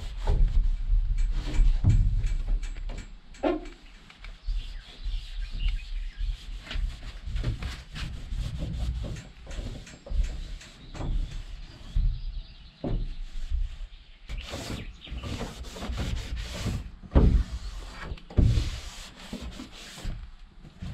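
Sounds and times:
scraping on wall panels: 0:00.0 - 0:12.2, 0:14.3 - 0:20.9
knocking and thumps on panels: 0:00.2 - 0:04.6, 0:06.6 - 0:13.3, 0:14.3 - 0:20.9.

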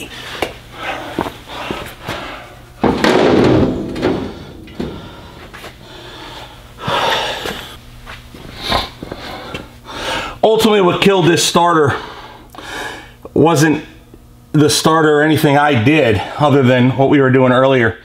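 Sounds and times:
metal knocks clunks and scrapes: 0:02.8 - 0:05.8.

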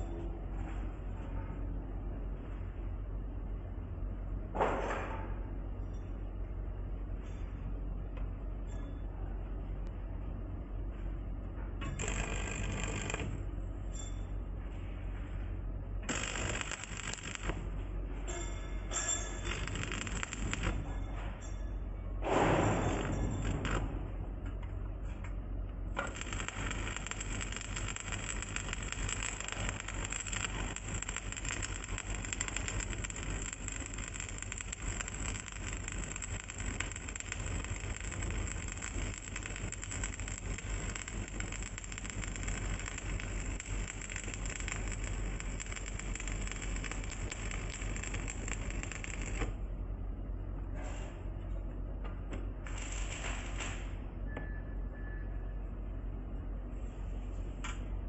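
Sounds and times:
low hum: 0:05.4 - 0:57.3
welding arc crackling and sizzling: 0:11.8 - 0:13.5, 0:16.0 - 0:21.0, 0:25.9 - 0:49.7, 0:52.6 - 0:53.9.

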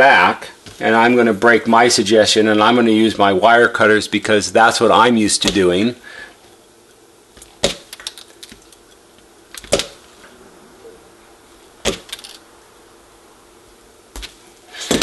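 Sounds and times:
wire cutters snapping: 0:07.4 - 0:08.9, 0:09.5 - 0:10.0, 0:11.8 - 0:12.4.

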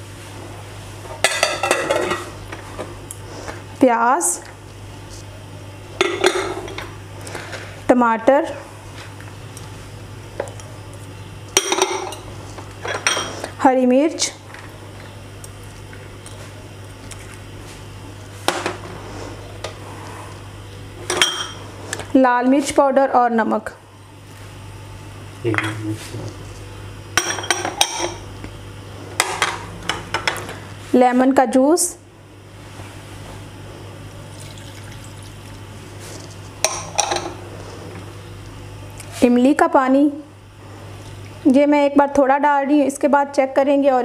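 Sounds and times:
steady low hum: 0:00.0 - 0:44.0
liquid trickling into bowl: 0:34.3 - 0:35.6.

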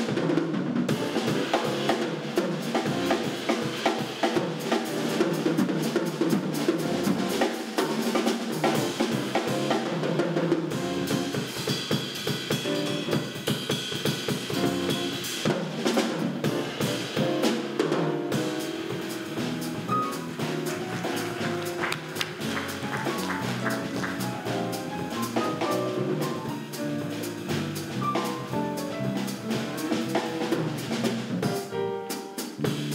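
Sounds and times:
drum kit playing: 0:00.0 - 0:32.9
jazz instruments pitched notes: 0:00.8 - 0:32.9.

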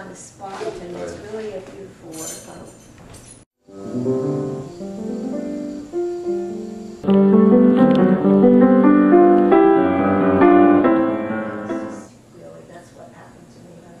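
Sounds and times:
piano chords: 0:03.6 - 0:12.1.

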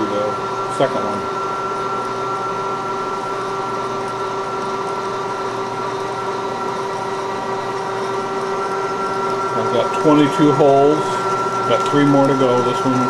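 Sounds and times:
milling machine drilling metal: 0:00.0 - 0:13.0.

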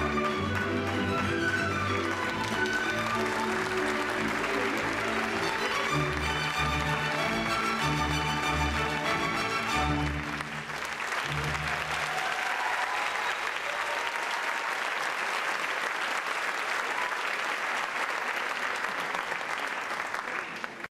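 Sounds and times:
ballet music: 0:00.0 - 0:12.0
audience applauding: 0:00.0 - 0:20.9.

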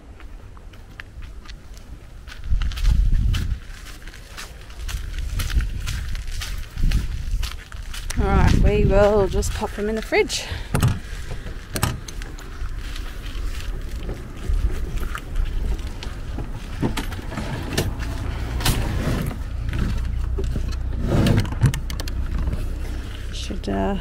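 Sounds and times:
steady low rumble: 0:00.0 - 0:24.0
metallic clicks and knocks: 0:19.7 - 0:22.6.

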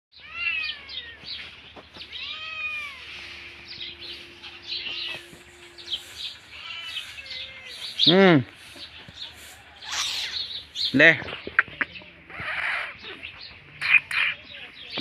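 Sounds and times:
cat meowing: 0:00.2 - 0:01.3, 0:02.1 - 0:03.1, 0:06.5 - 0:08.0.

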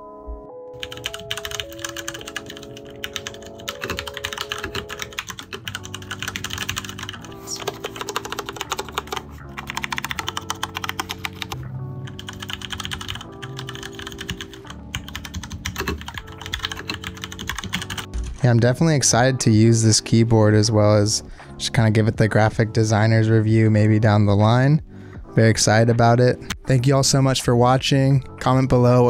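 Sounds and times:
background music: 0:00.0 - 0:29.0
mechanical keyboard typing: 0:00.8 - 0:18.1.

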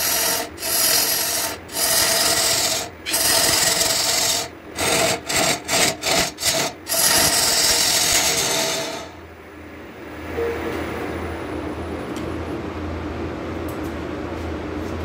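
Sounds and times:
lathe humming: 0:00.0 - 0:09.2
lathe tool rasping wood: 0:00.0 - 0:09.2.

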